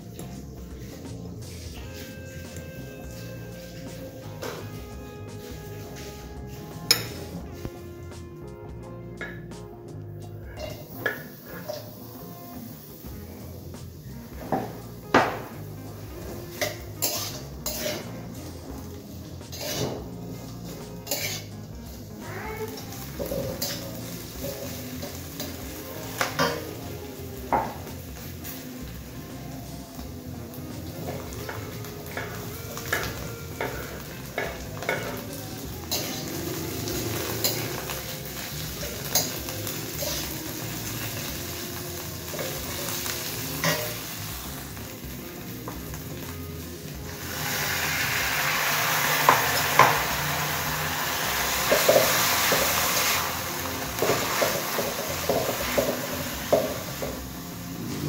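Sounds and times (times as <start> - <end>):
food sizzling in oil: 0.0 - 58.0
metal spatula scraping a wok: 0.2 - 7.8, 16.4 - 21.7, 22.8 - 25.8, 31.4 - 41.3.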